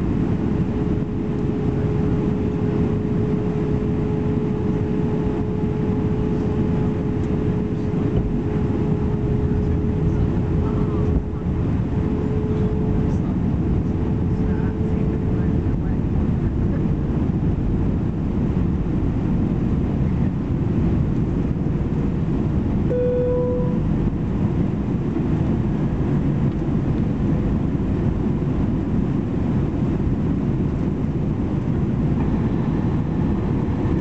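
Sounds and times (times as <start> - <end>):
airplane cabin rumble: 0.0 - 34.0
short clear tone: 22.9 - 23.9.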